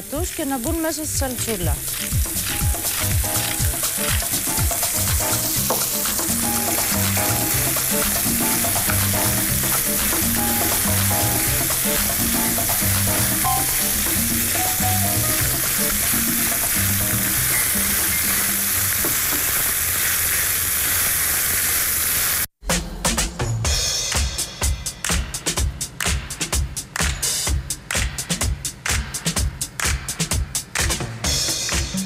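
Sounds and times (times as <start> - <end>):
soft background music: 0.0 - 18.5
meat sizzling in a frying pan: 0.0 - 22.5.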